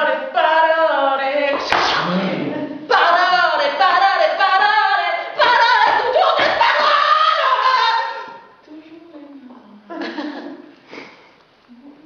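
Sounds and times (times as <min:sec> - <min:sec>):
woman singing in sliding notes: 0:00.0 - 0:09.0.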